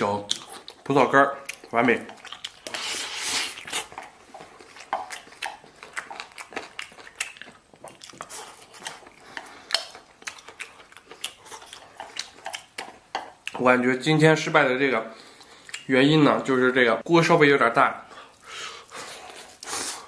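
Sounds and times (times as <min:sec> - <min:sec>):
close-up chewing: 0:00.1 - 0:13.8, 0:15.2 - 0:15.9.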